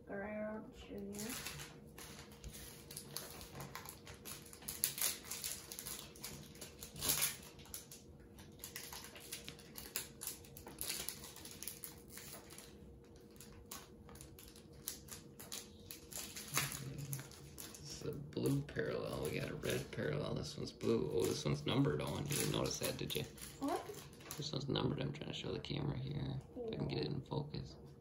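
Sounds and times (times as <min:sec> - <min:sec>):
faint steady hum: 0:00.0 - 0:28.0
cards rustling and clicking: 0:01.2 - 0:20.0.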